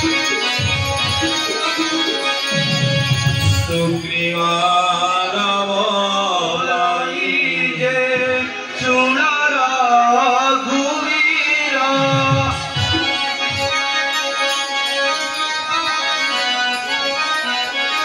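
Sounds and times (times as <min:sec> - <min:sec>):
keyboard accompaniment: 0:00.0 - 0:18.0
man singing: 0:03.6 - 0:13.1.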